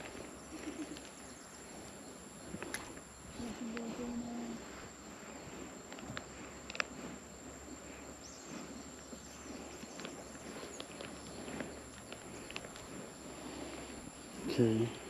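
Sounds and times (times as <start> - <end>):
faint clicks: 5.9 - 7.0, 9.8 - 13.0.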